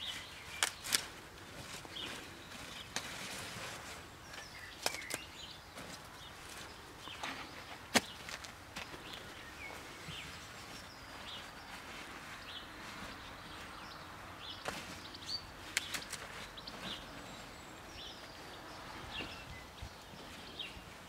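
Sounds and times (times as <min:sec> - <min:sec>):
small birds chirping: 0:00.0 - 0:21.0
stalks snapping: 0:00.5 - 0:01.2, 0:04.8 - 0:05.3, 0:15.7 - 0:16.3.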